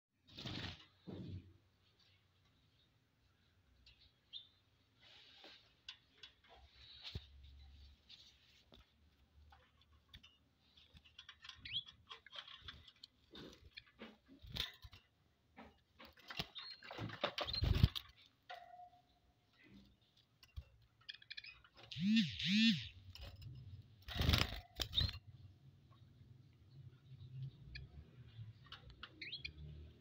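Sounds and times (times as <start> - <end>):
small birds chirping: 2.0 - 5.6, 6.5 - 30.0
clicks and rustling: 5.4 - 22.0.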